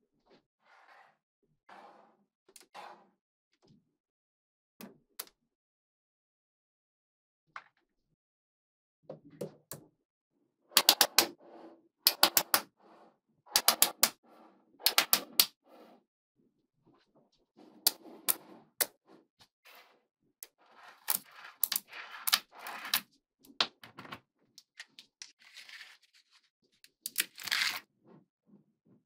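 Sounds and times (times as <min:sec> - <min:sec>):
balls rattling and scraping on table: 0:00.2 - 0:03.2, 0:10.7 - 0:16.0, 0:16.8 - 0:29.0
magnetic balls clicking together: 0:14.8 - 0:15.5.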